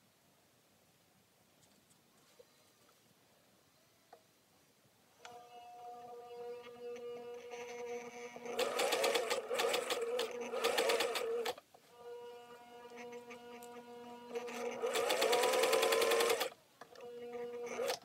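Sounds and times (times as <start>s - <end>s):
sewing machine motor hum: 5.3s - 18.0s.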